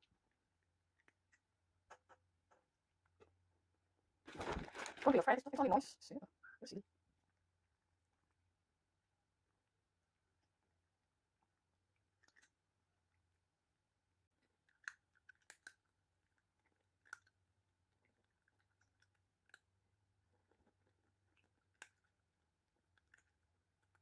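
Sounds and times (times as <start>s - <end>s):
cat crunching dry kibble: 14.4s - 24.0s.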